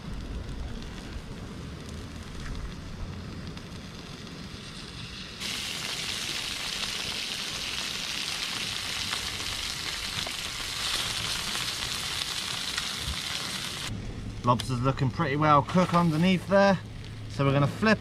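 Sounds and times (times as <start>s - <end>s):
butter sizzling on a hot grill: 0.0s - 13.9s.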